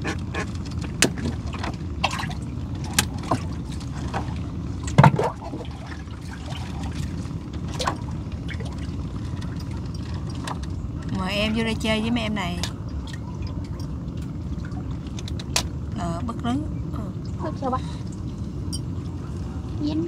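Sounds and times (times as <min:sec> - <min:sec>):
low steady rumble: 0:00.0 - 0:20.0
water trickling and splashing: 0:00.6 - 0:11.3, 0:12.6 - 0:16.0.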